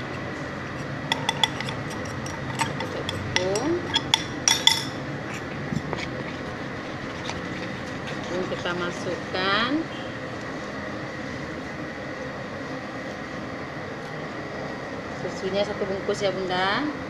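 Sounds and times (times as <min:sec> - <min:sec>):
batter stirring: 0:00.0 - 0:09.7
spoon clinking against bowl: 0:01.1 - 0:05.0.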